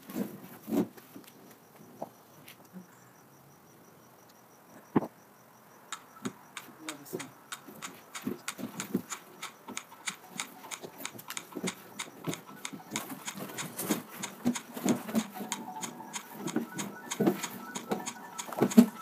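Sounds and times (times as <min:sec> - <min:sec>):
roller stick clicking and clacking: 0:06.6 - 0:19.0.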